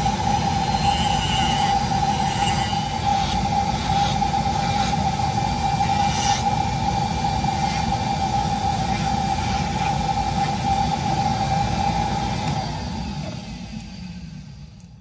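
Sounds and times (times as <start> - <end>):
rotary tool grinding wood: 0.4 - 6.5.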